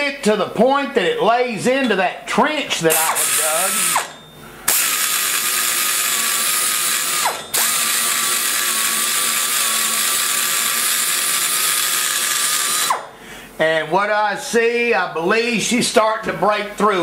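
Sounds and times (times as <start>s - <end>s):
die grinder cutting metal: 2.9s - 13.1s.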